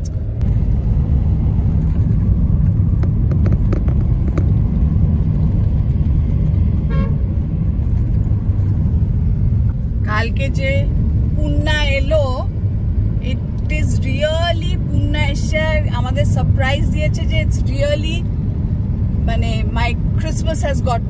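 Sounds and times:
car driving rumble: 0.0s - 21.0s
car horn toot: 6.9s - 7.2s.

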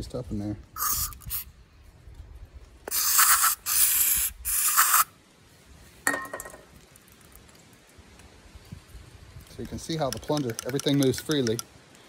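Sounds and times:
aerosol spray hissing: 0.8s - 1.5s, 2.9s - 5.1s.

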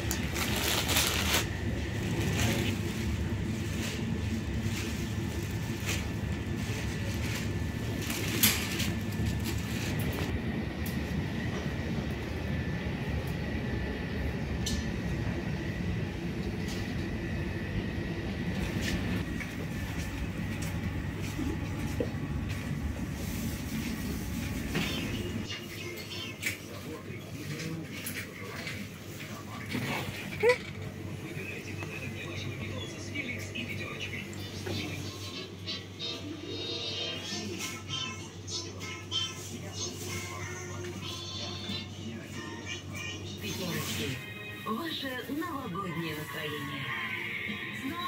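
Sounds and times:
shopping cart rolling and rattling: 0.1s - 10.2s.

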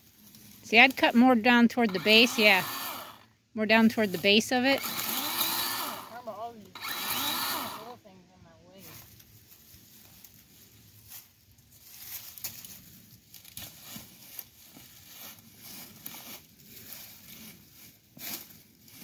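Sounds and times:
dry leaves crunching underfoot: 0.0s - 1.2s, 8.8s - 19.0s.

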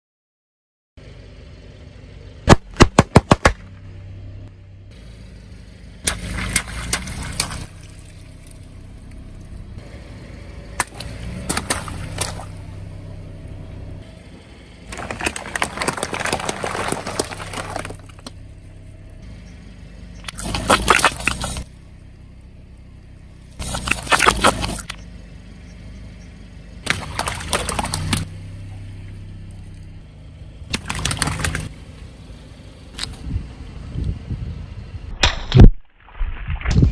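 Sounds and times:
car engine humming: 1.0s - 35.2s
crunching popping and splashing: 6.0s - 8.6s, 10.8s - 12.6s, 14.9s - 18.4s, 20.2s - 21.7s, 23.6s - 25.0s, 26.8s - 28.3s, 30.7s - 31.8s, 35.2s - 36.9s
balloons and bottles popping: 14.9s - 18.4s, 20.3s - 21.6s.

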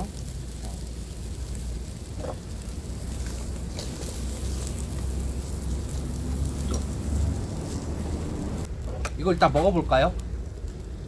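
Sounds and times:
fat dripping on hot coals: 0.0s - 11.0s
low steady rumble: 0.0s - 11.0s
meat sizzling on grill: 0.0s - 11.0s.

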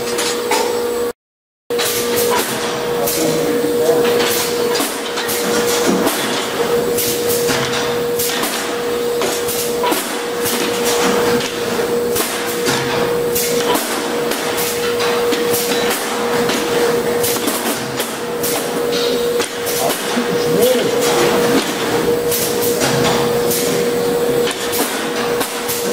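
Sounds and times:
machine hum: 1.8s - 25.9s
machine metallic clacks: 4.0s - 25.9s.

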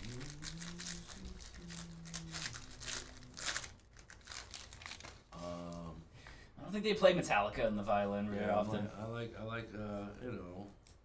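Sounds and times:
foil wrapper crinkling and tearing: 0.0s - 5.3s.

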